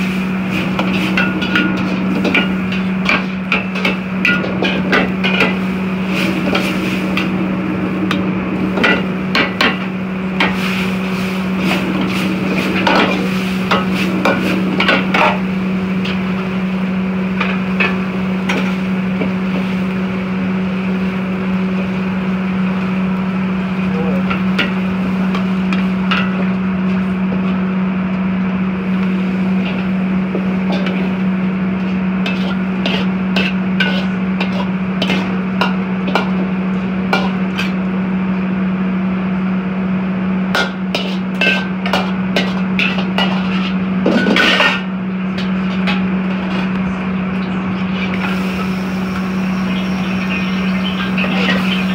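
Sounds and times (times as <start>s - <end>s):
low hum from wok station: 0.0s - 51.9s
ladle clanking on wok: 32.2s - 36.4s, 40.6s - 46.6s.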